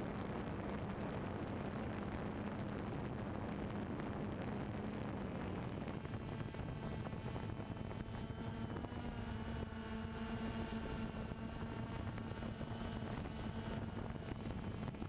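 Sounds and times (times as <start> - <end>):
drone propellers humming: 0.0 - 15.0.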